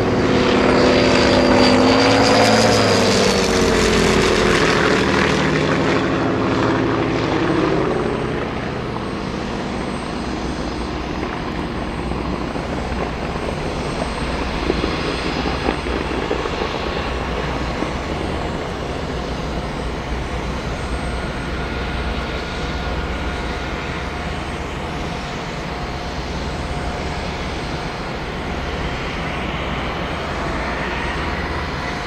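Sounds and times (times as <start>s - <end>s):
propeller aircraft engine droning: 0.0s - 32.0s.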